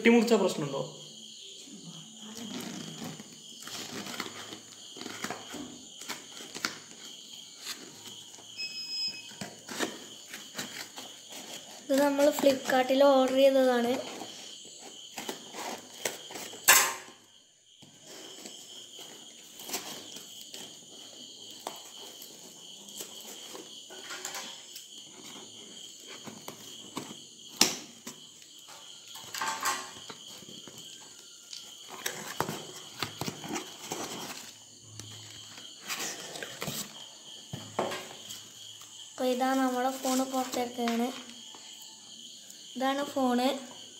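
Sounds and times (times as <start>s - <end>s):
crickets chirring: 0.0s - 43.9s
cardboard and paper rustling: 2.4s - 8.5s, 9.4s - 16.6s, 30.3s - 38.5s, 39.5s - 41.4s.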